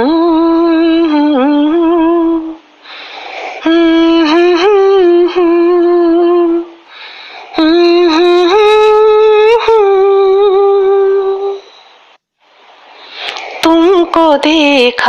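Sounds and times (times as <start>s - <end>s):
woman humming a slow melody: 0.0s - 2.6s, 3.6s - 6.8s, 7.6s - 11.8s.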